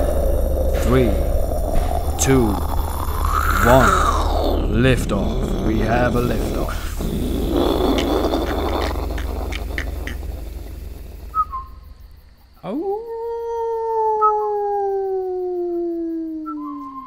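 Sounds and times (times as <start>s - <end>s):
long swooping howl: 0.0s - 12.3s.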